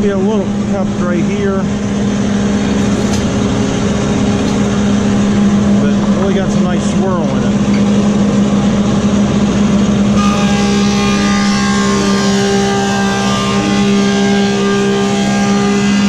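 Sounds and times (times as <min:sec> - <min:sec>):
planer motor humming: 0:01.3 - 0:16.0
whine of wood being planed: 0:10.1 - 0:16.0.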